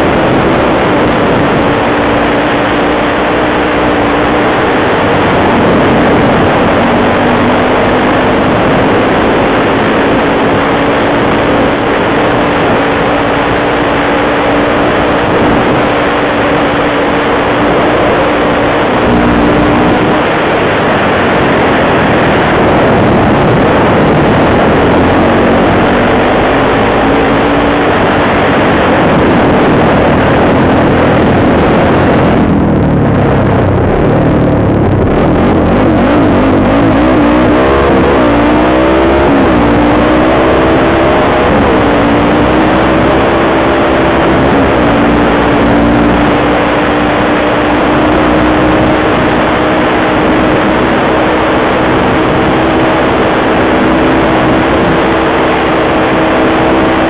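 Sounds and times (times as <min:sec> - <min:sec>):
quad bike engine revving: 0:00.0 - 0:57.0
wind rush on microphone: 0:00.0 - 0:57.0.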